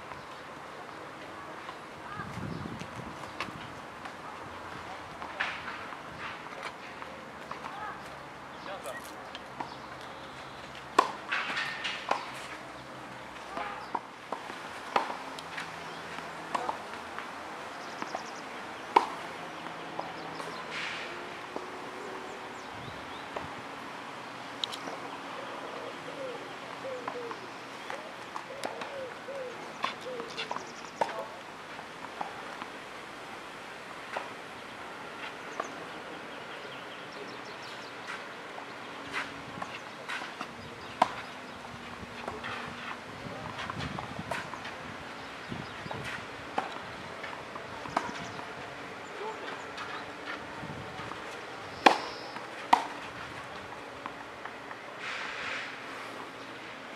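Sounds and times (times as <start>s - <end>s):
outdoor background noise: 0.0s - 56.9s
tennis ball struck by racket: 11.0s - 12.5s, 51.1s - 53.1s.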